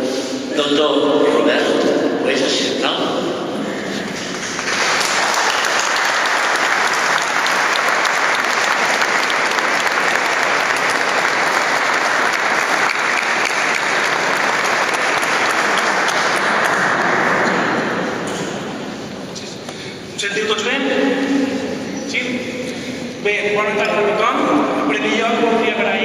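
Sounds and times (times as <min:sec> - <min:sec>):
audience applauding: 0:04.0 - 0:18.4.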